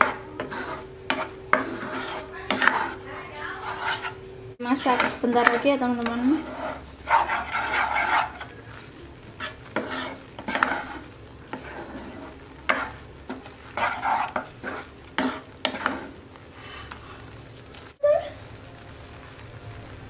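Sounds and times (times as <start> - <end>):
spoon scraping and tapping pan: 0.0 - 3.0, 3.6 - 8.6, 9.4 - 16.1
wooden spoon stirring sauce: 0.0 - 18.0.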